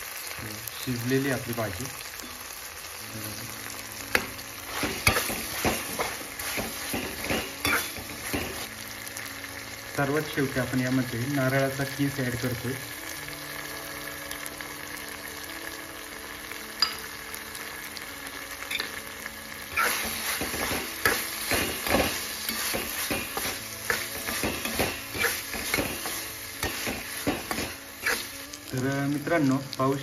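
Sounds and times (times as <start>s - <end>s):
low sizzle: 0.0s - 30.0s
metal spatula scraping a pan: 4.1s - 8.7s, 19.7s - 28.4s.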